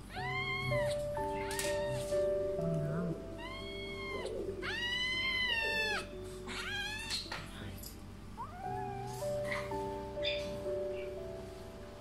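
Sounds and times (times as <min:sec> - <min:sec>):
soft background music: 0:00.0 - 0:12.0
kitten meowing: 0:00.1 - 0:02.3, 0:03.4 - 0:07.4, 0:08.4 - 0:09.7.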